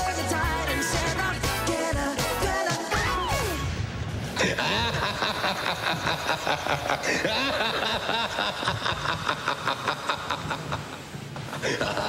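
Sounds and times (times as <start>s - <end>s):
cackling laugh: 4.4s - 12.0s.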